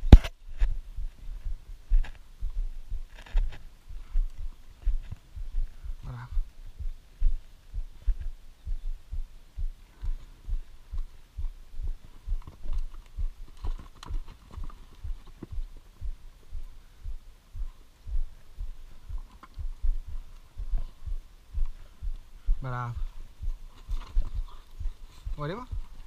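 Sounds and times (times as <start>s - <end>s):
footstep thumps: 0.0s - 26.0s
horses' hooves clicking on dirt: 10.0s - 16.7s, 17.6s - 21.0s, 23.0s - 26.0s.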